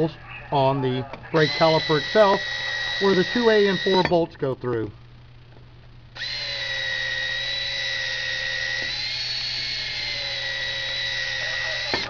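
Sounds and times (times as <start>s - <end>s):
power drill whine: 1.4s - 4.1s, 6.2s - 12.0s.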